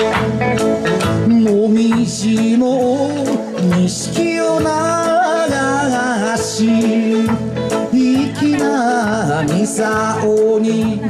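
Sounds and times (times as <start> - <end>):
electric guitar: 0.0 - 11.0
steady beat: 0.0 - 11.0
man singing: 1.1 - 11.0.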